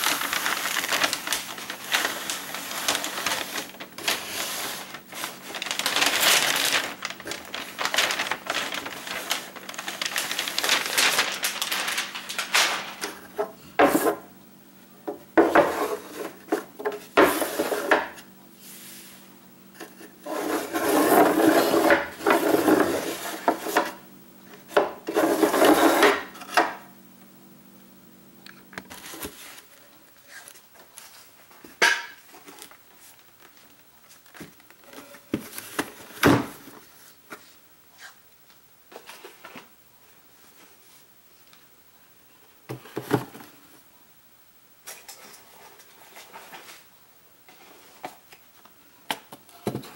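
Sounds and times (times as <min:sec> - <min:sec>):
plastic tray scraping in drawer: 0:00.1 - 0:14.2, 0:15.4 - 0:18.2, 0:20.2 - 0:24.0, 0:25.0 - 0:26.6.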